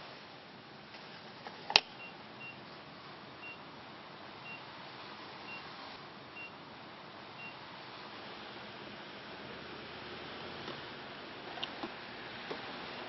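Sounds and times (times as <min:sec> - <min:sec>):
steady hiss: 0:00.0 - 0:13.0
car warning chime beeping: 0:02.0 - 0:02.6, 0:03.4 - 0:03.6, 0:04.4 - 0:04.6, 0:06.4 - 0:06.6, 0:07.4 - 0:07.6.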